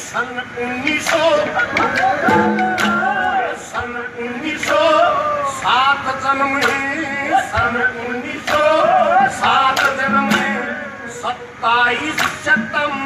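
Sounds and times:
man singing over loudspeaker: 0:00.0 - 0:13.0
hand drum strokes: 0:01.7 - 0:03.4.

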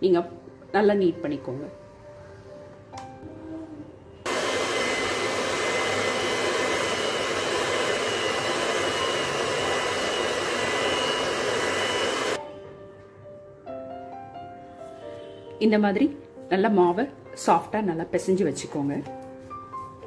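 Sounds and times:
electric hand mixer kneading dough: 0:04.3 - 0:12.4.

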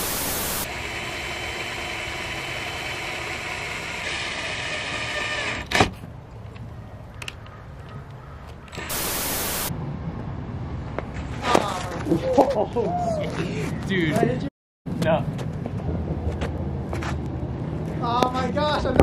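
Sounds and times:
loud hiss burst: 0:00.0 - 0:00.7, 0:08.8 - 0:09.7
rotary tool whining: 0:00.0 - 0:06.0, 0:08.7 - 0:09.7.

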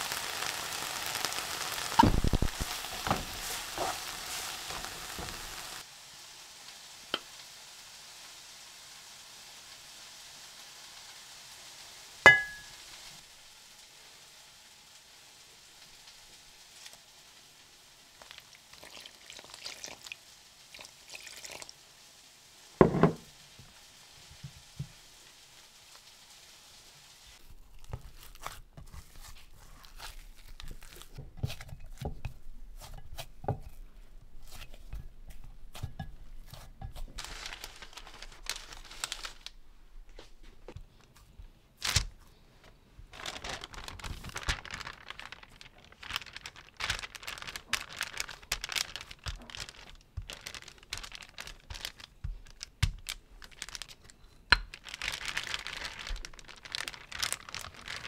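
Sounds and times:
hands rubbing dough: 0:27.4 - 0:39.4
parchment paper crinkling: 0:27.4 - 0:58.0
dough squishing against glass: 0:27.5 - 0:39.4, 0:43.2 - 0:58.0.

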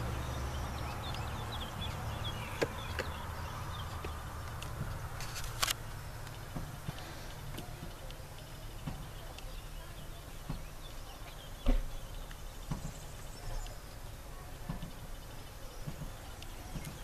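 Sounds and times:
steady low rumble: 0:00.0 - 0:17.0
camera handling clicks and rustles: 0:04.0 - 0:06.4.

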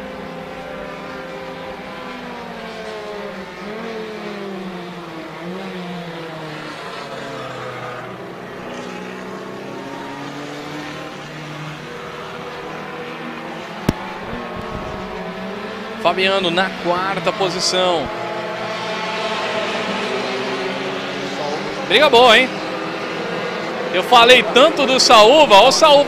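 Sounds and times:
racing car engines: 0:00.0 - 0:26.0.

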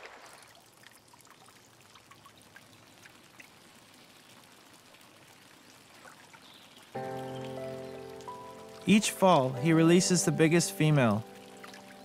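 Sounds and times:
river water trickling over stones: 0:00.0 - 0:12.0
water drips and splashes: 0:00.0 - 0:12.0.

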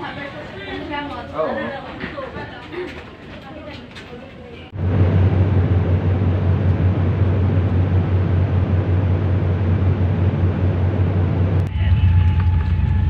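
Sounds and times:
airliner cabin engine rush: 0:04.7 - 0:13.0
low hum: 0:04.8 - 0:13.0.

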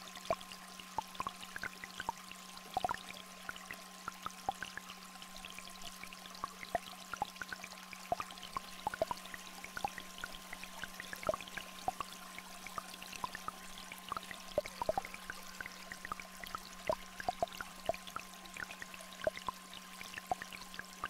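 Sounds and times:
stream trickling: 0:00.0 - 0:21.0.

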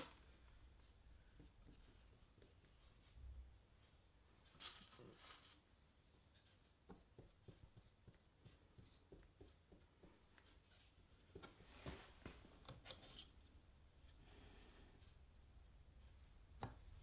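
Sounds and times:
paintbrush dabbing and scraping: 0:00.0 - 0:14.4
wooden taps and knocks: 0:16.6 - 0:16.9.

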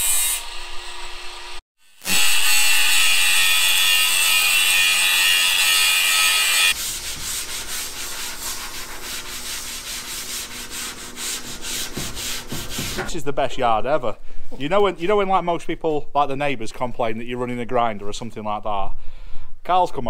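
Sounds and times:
angle grinder cutting metal: 0:00.0 - 0:06.8
rubbing metal edge by hand: 0:06.1 - 0:13.2.

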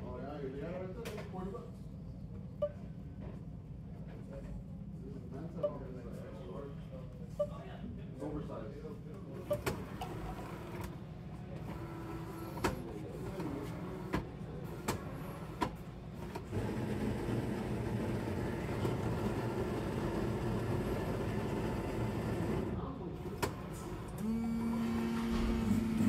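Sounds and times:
coffee machine motor humming: 0:09.6 - 0:26.0.

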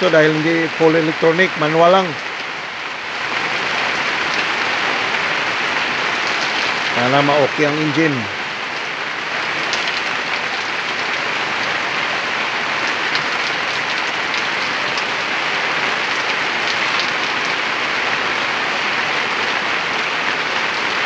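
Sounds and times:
water hissing: 0:04.5 - 0:18.6.

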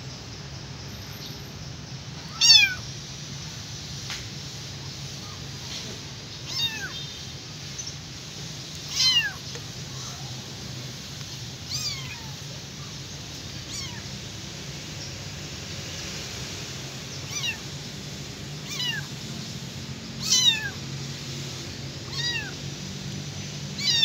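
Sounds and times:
kitten meowing: 0:02.2 - 0:02.8, 0:06.4 - 0:07.1, 0:08.9 - 0:10.4, 0:11.6 - 0:12.7, 0:13.6 - 0:14.1, 0:17.2 - 0:17.7, 0:18.6 - 0:19.1, 0:20.2 - 0:20.8, 0:22.0 - 0:22.6, 0:23.8 - 0:24.0.

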